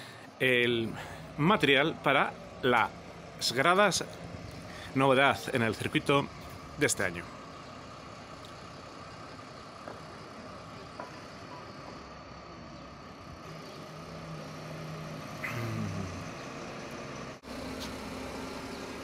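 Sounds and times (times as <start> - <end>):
truck engine running: 0.0 - 19.0.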